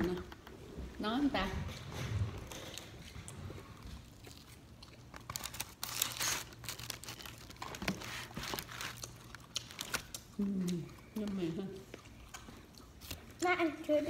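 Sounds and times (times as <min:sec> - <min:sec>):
paper liner crinkling: 0:04.4 - 0:10.2.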